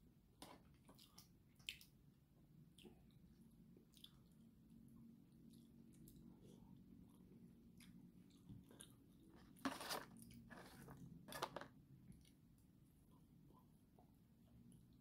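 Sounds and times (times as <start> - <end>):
low steady hum: 0.0 - 15.0
person chewing food: 0.4 - 11.5.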